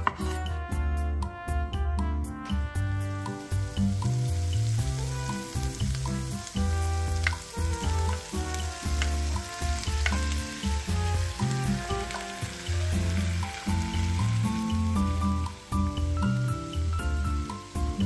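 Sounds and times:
wooden spatula tapping and scraping: 0.0 - 0.4, 7.2 - 10.6
background music with deep bass: 0.0 - 18.0
vegetables sizzling in a skillet: 3.0 - 18.0.

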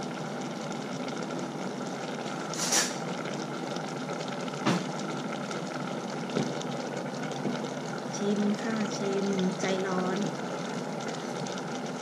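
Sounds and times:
curry simmering: 0.0 - 12.0
brief louder hiss: 2.5 - 3.0.

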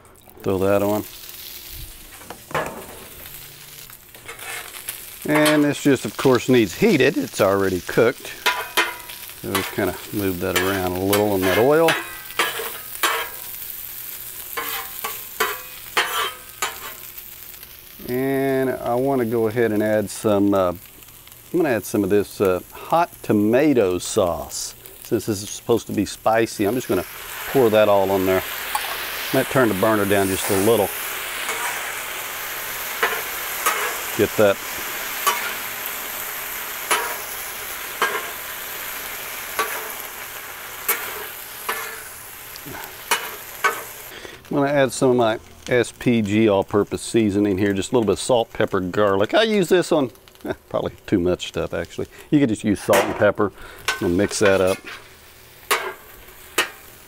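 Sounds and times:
faint sizzle on griddle: 0.0 - 57.0
metal spatula scraping griddle: 1.2 - 17.6, 26.7 - 44.1, 53.8 - 56.9.

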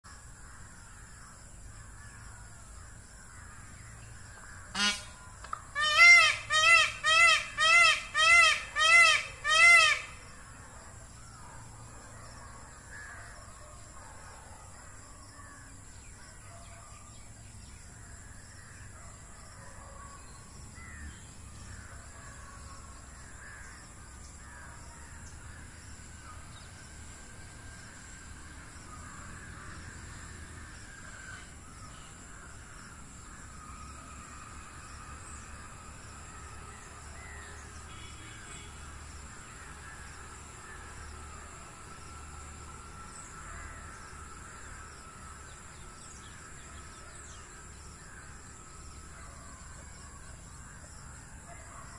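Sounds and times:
peafowl calling: 4.7 - 10.3.

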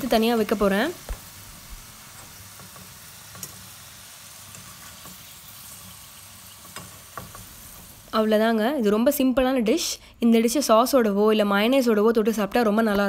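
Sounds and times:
food deep-frying in oil: 0.0 - 8.4.

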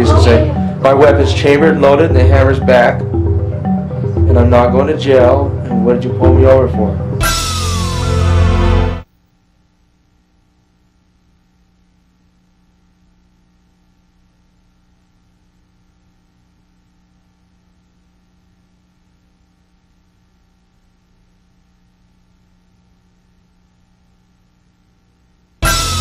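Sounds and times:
faint electrical hum: 0.0 - 7.2, 9.0 - 25.7
music: 0.0 - 9.1, 25.6 - 26.0.

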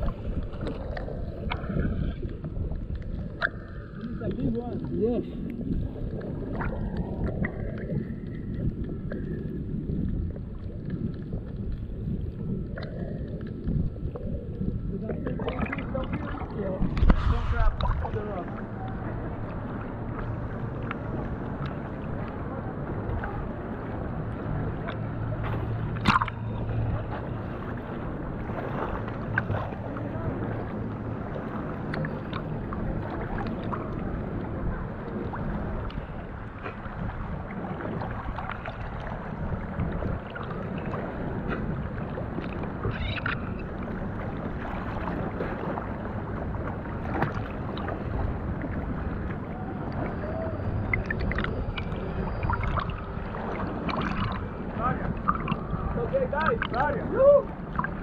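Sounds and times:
water sloshing and lapping: 0.0 - 58.0
small splashes: 15.0 - 19.2, 24.8 - 34.0, 35.1 - 58.0.

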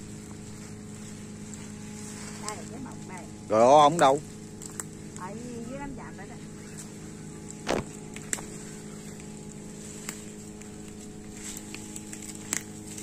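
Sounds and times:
low mechanical hum: 0.0 - 13.0
short crackle: 6.7 - 13.0.

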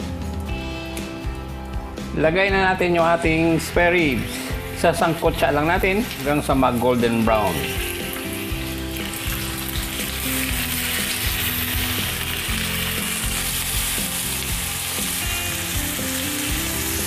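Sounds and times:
ribs sizzling in frying pan: 3.6 - 17.0.

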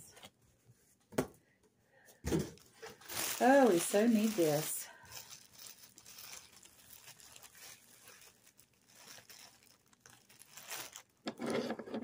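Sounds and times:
plastic wrap crinkling: 2.3 - 11.3.

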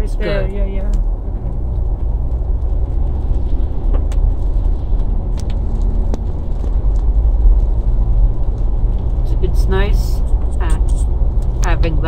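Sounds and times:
tyre and engine rumble: 0.0 - 12.0.

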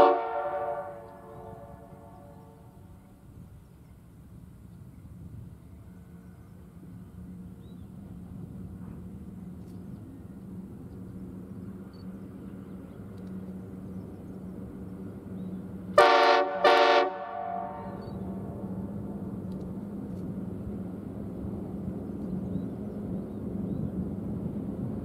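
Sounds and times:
locomotive horn blasts: 0.0 - 2.8, 16.0 - 18.0
diesel engine drone: 5.6 - 25.0.

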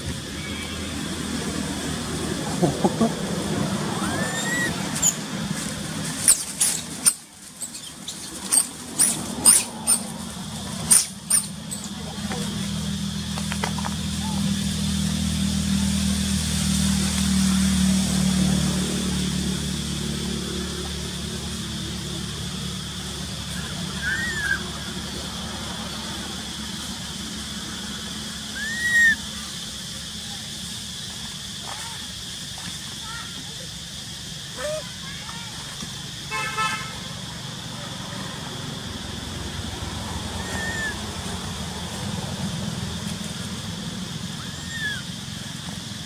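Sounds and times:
short rising and falling call: 3.7 - 5.2
baby monkey squealing: 3.9 - 5.3, 6.2 - 10.1, 10.9 - 11.9, 23.5 - 24.9, 28.5 - 29.3, 40.3 - 41.0, 44.3 - 45.4.

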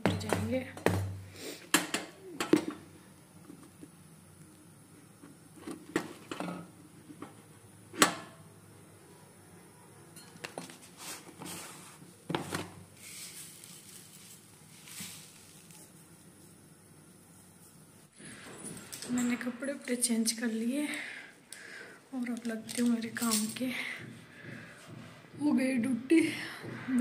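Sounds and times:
household items knocking and clinking: 0.0 - 2.8, 22.4 - 25.9.

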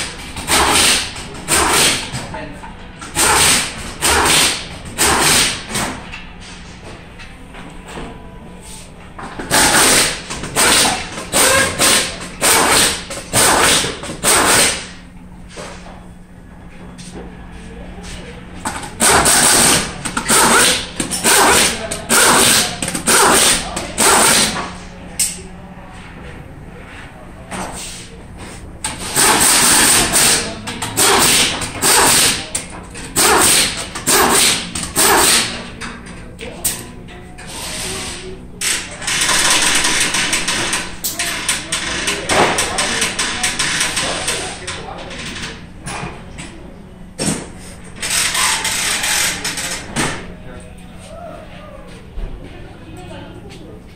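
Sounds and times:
pneumatic impact wrench bursts: 0.0 - 2.1, 3.0 - 6.0, 9.4 - 15.0, 18.7 - 24.8, 28.9 - 32.5, 33.1 - 35.7.

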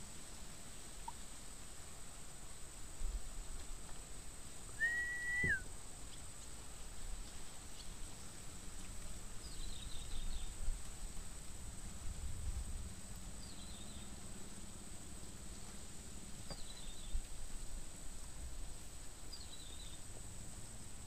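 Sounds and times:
clear whistle sliding down: 4.8 - 5.6.

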